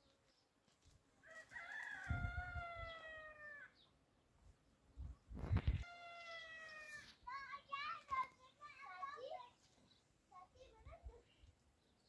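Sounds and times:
rooster crowing: 1.2s - 3.7s.

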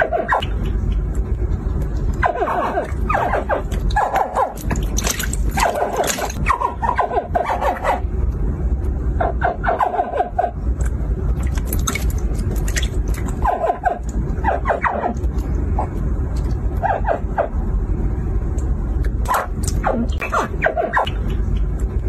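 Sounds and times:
low rumble: 0.0s - 22.0s
hatchling crocodiles chirping: 19.8s - 21.7s.

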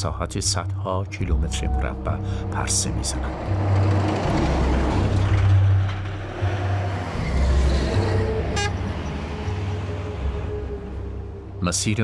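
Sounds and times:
traffic noise: 1.9s - 11.8s
truck passing at speed: 2.2s - 11.6s.

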